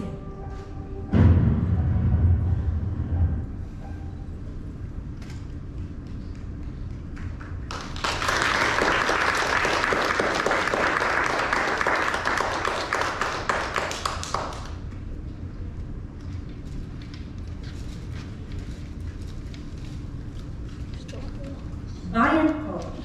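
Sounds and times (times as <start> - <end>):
audience applauding: 6.7 - 14.9.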